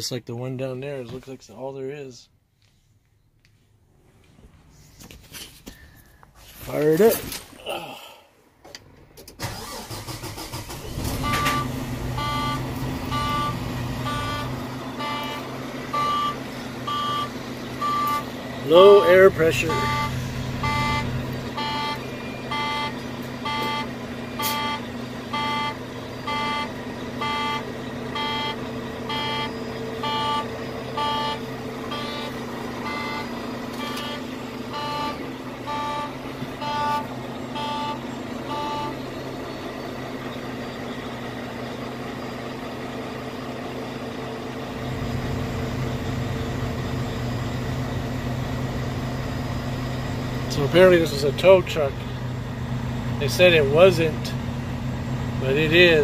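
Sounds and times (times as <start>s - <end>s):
diesel engine idling: 8.8s - 56.0s
warning beeping: 9.4s - 39.8s.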